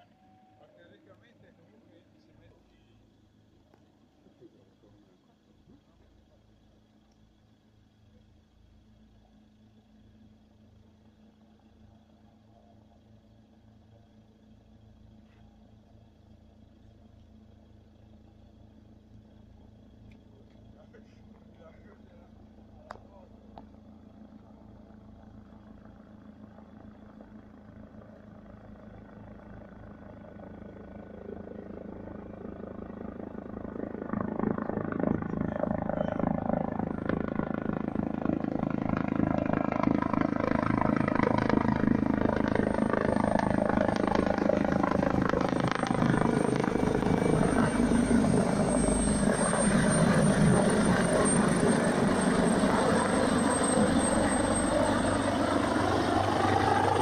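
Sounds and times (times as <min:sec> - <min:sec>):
helicopter rotor noise: 0:20.2 - 0:57.0
high whine: 0:31.1 - 0:57.0.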